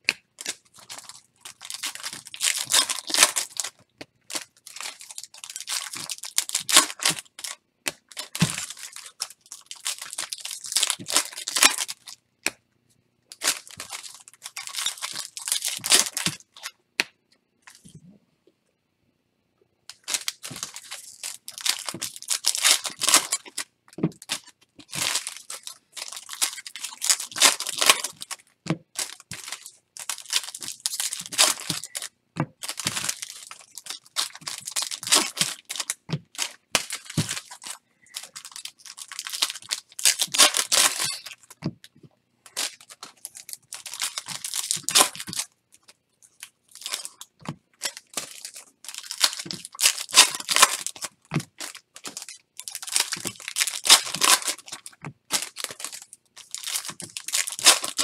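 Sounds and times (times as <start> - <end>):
card pack wrappers tearing: 0.4 - 12.1, 13.4 - 16.7, 19.9 - 41.6, 42.5 - 45.5, 46.7 - 58.0.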